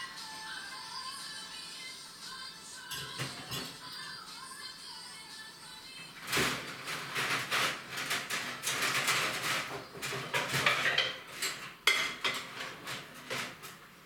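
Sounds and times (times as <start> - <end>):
crockery clattering in sink: 6.6 - 13.6.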